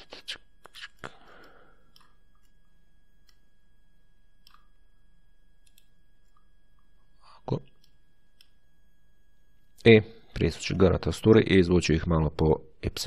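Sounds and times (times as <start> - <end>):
steady low hum: 0.0 - 13.0
computer mouse clicks: 0.8 - 2.6, 3.2 - 3.4, 4.4 - 4.7, 5.6 - 6.5.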